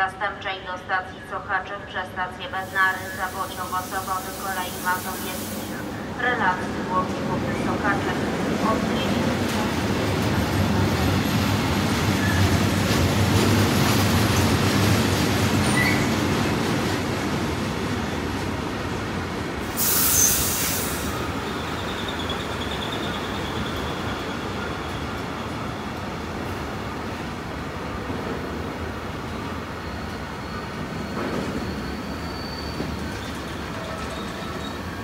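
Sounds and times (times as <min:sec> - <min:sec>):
sharp hiss: 0:02.6 - 0:05.8, 0:19.7 - 0:21.2
train wheels rumbling on rail: 0:02.6 - 0:35.0
faint wheel squeal: 0:29.8 - 0:34.9.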